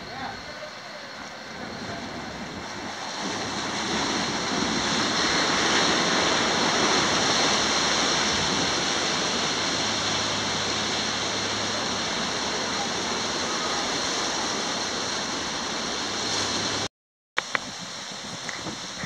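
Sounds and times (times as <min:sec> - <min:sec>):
sea waves breaking over rocks: 0:00.0 - 0:19.0.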